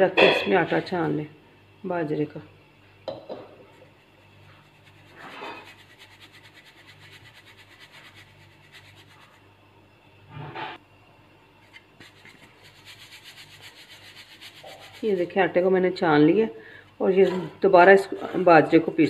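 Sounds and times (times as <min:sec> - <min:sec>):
flour rasping through sieve: 0:03.6 - 0:09.5, 0:11.6 - 0:15.4.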